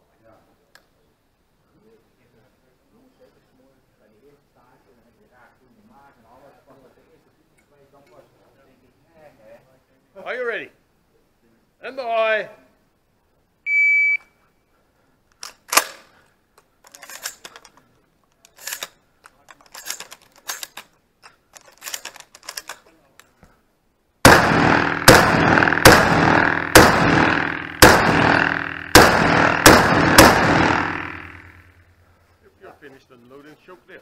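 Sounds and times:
shot timer beep: 0:13.7 - 0:14.3
clicks and rattles of gun handling: 0:15.3 - 0:23.4
sharp crack: 0:15.4 - 0:16.1, 0:24.2 - 0:31.9
loud shotgun shots: 0:24.2 - 0:31.8.

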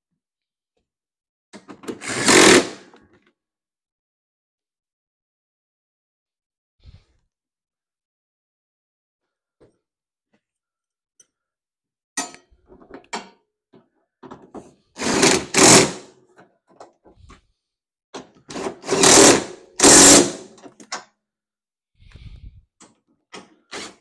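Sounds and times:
impact driver running bolts: 0:01.9 - 0:02.8, 0:15.0 - 0:16.0, 0:18.5 - 0:20.6
tools and parts clinking: 0:12.2 - 0:13.4.

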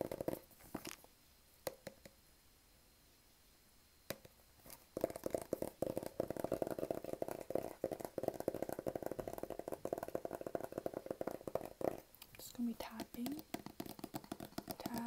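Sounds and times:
fingers tapping on cardboard box: 0:00.0 - 0:00.5, 0:04.1 - 0:12.1, 0:12.8 - 0:15.0.

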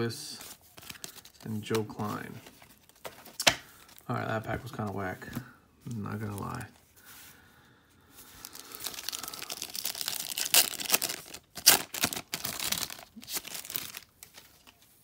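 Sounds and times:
wrapper tearing and crinkling: 0:08.4 - 0:14.8.

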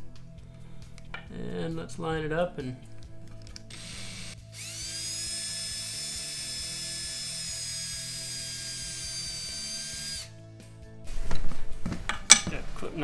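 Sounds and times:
cordless drill drilling into wood: 0:03.7 - 0:10.3.

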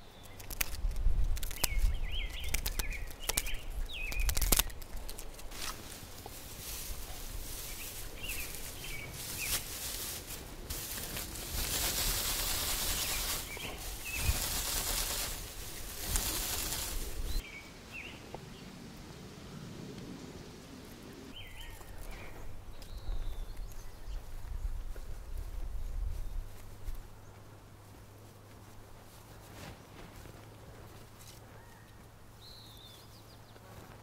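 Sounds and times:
dry grass rustling in hands: 0:00.2 - 0:17.5, 0:21.3 - 0:31.7
birds chirping: 0:01.5 - 0:18.8, 0:19.4 - 0:24.9.

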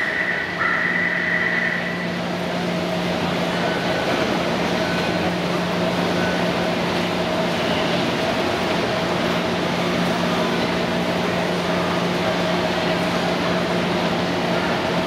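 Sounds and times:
steady high tone: 0:00.0 - 0:04.1
low station hum: 0:00.0 - 0:15.0.

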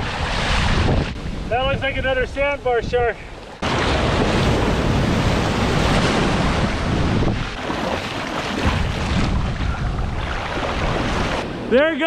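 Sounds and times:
wind buffeting microphone: 0:00.0 - 0:11.9
ocean surf washing: 0:00.0 - 0:12.0.

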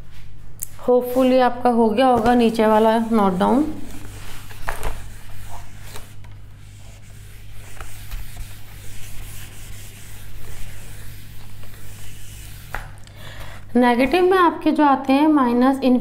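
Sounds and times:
steady low hum: 0:00.0 - 0:16.0
eraser rubbing on whiteboard: 0:02.6 - 0:13.0.

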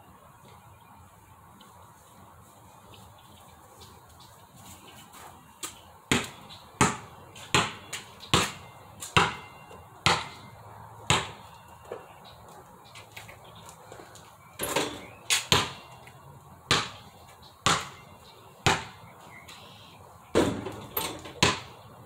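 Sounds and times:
basketball bouncing on hard ground: 0:05.6 - 0:12.2, 0:13.9 - 0:19.6, 0:20.3 - 0:21.9.

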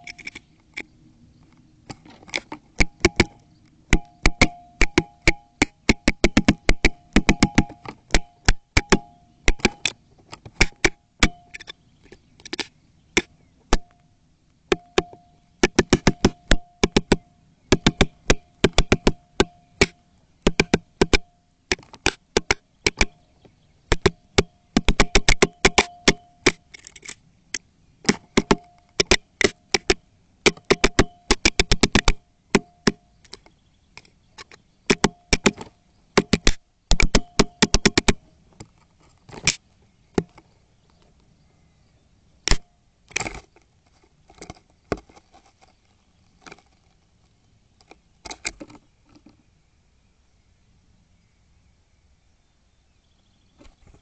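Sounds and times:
woodpecker knocking on camera: 0:02.0 - 0:13.9, 0:14.7 - 0:23.2, 0:23.9 - 0:26.6, 0:28.0 - 0:38.2.

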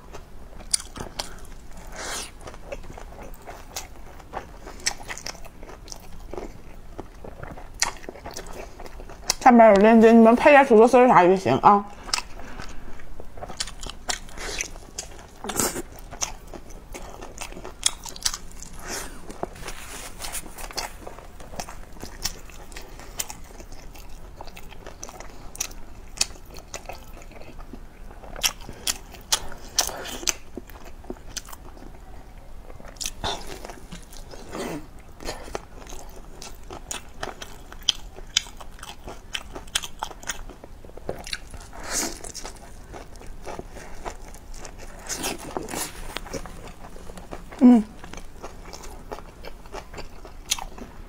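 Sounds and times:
person biting and chewing: 0:12.1 - 0:27.4, 0:32.9 - 0:50.9.

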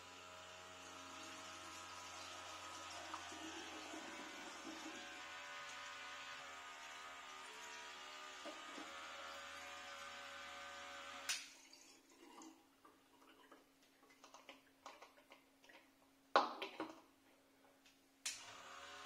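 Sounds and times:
electric pump humming: 0:00.0 - 0:11.4, 0:18.3 - 0:19.0
liquid pouring into bottle: 0:01.2 - 0:05.0, 0:11.4 - 0:15.8.

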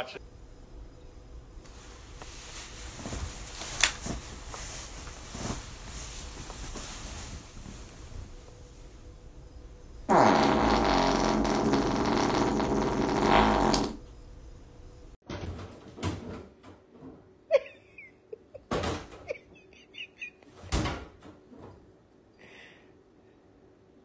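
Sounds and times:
long loud fart: 0:10.1 - 0:14.0.

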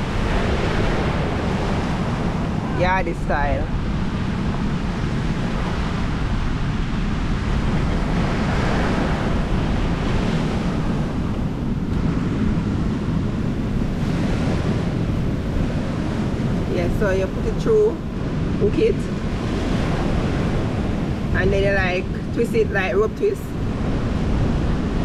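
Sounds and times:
waves breaking on shore: 0:00.0 - 0:25.0
wind buffeting microphone: 0:00.0 - 0:25.0.

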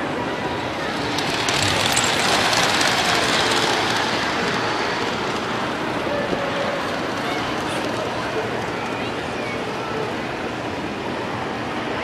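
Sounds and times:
model train wheels rattling: 0:00.6 - 0:09.1.

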